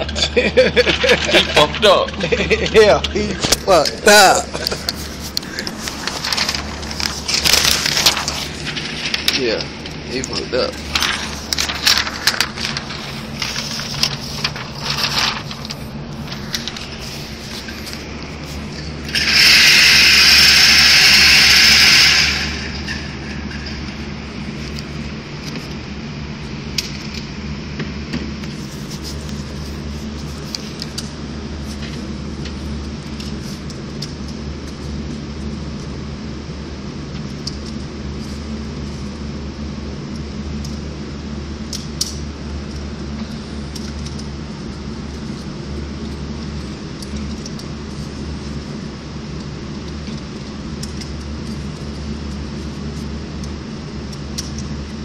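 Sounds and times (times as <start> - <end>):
steady low hum: 0.0 - 55.0
paper crackling and rustling: 0.7 - 19.6, 28.4 - 35.9, 41.6 - 55.0
target carrier hissing whir: 2.3 - 25.9.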